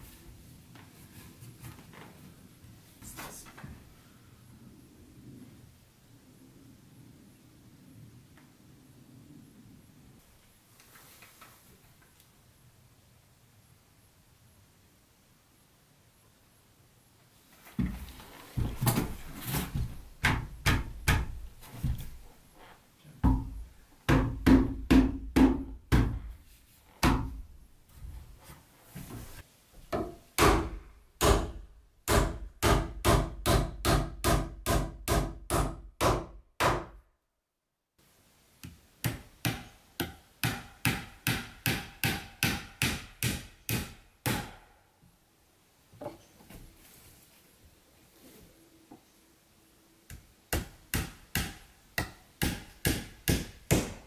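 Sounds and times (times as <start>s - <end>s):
hammer driving nails into wood: 20.2s - 22.0s, 23.3s - 26.4s, 29.9s - 37.0s, 38.6s - 44.6s, 50.1s - 54.0s.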